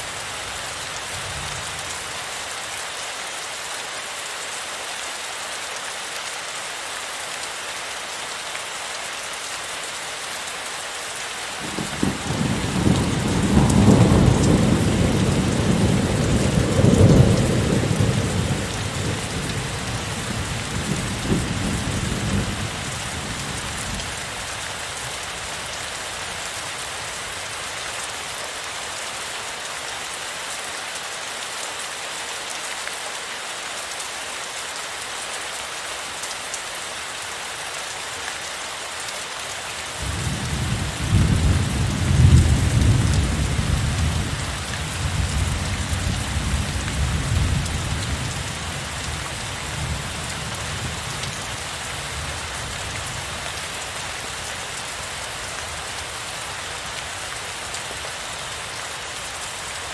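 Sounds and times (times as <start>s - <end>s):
heavy rain hissing: 0.0s - 59.9s
rolling thunder: 11.7s - 19.8s.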